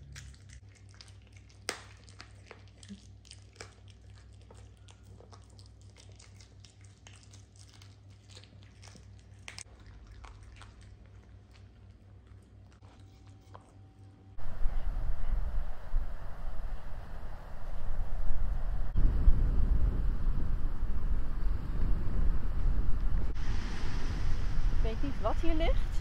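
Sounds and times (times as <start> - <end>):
dog crunching food: 0.0 - 13.7
steady low hum: 2.8 - 26.0.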